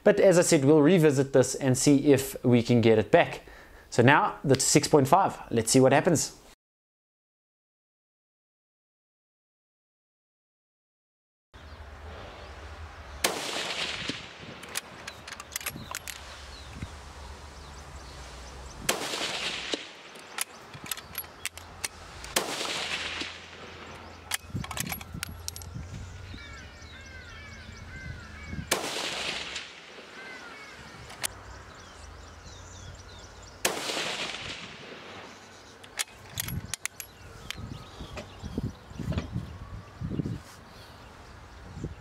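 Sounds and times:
birds chirping: 11.6s - 42.0s
rifle shots with echo: 13.2s - 14.9s, 18.9s - 20.6s, 22.3s - 24.9s, 28.7s - 30.3s, 33.6s - 35.4s.

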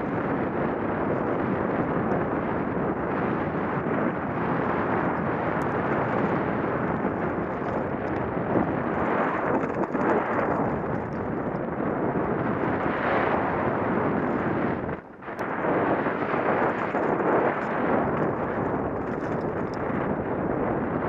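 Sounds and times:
wind on microphone: 0.0s - 21.0s
mountain bike rattling on gravel: 3.6s - 14.5s, 16.2s - 20.8s.

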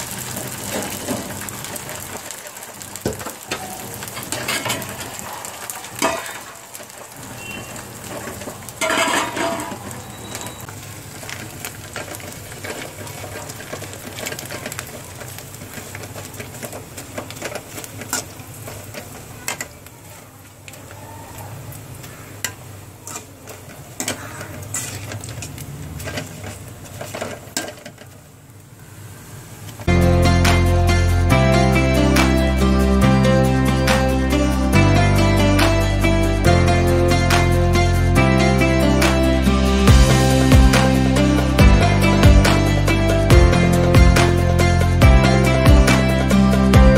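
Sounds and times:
metal spoon scraping a steel pan: 8.8s - 9.8s, 24.0s - 26.4s.

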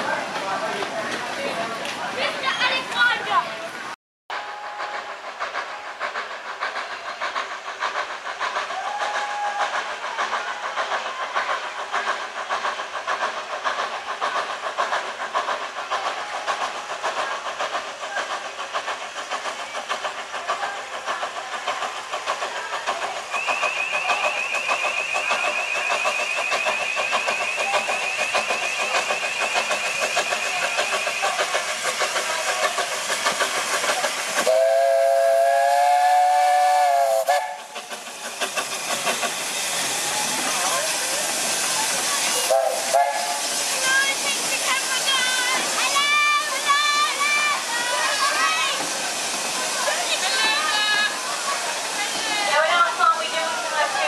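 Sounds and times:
steam hissing: 4.3s - 54.0s
steam locomotive chuffing: 4.3s - 54.0s
steam whistle blast: 34.4s - 37.8s, 42.4s - 43.5s.

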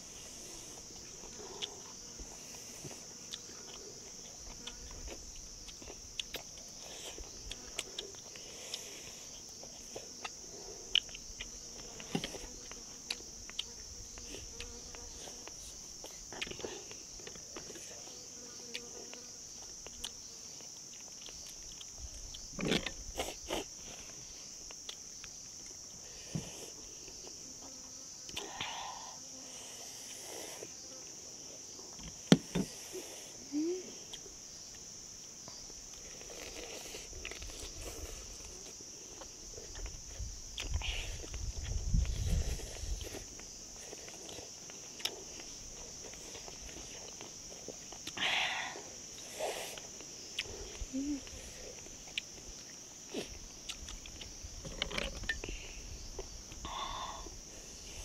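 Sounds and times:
insect chorus drone: 0.0s - 58.0s
small clicks and knocks: 53.8s - 55.5s.

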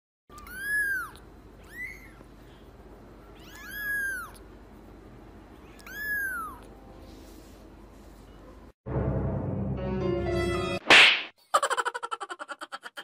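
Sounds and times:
kitten meowing: 0.3s - 2.2s, 3.3s - 4.4s, 5.6s - 6.7s.

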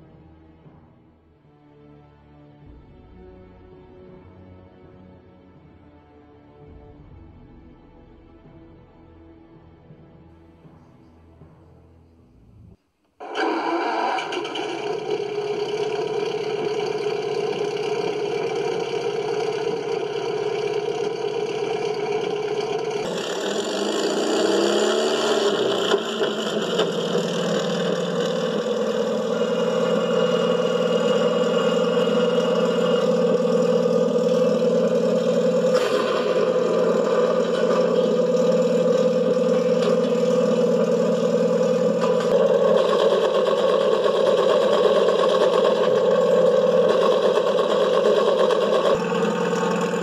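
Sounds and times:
simulated engine starting and idling: 12.3s - 50.0s.

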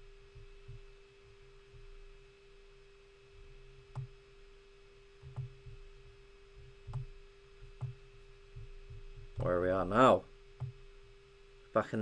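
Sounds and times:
faint electrical hum: 0.0s - 12.0s
computer mouse clicks: 3.9s - 4.2s.

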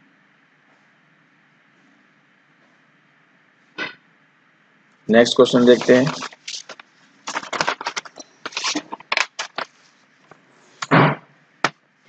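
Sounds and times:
rustling handling noise: 5.2s - 10.8s.

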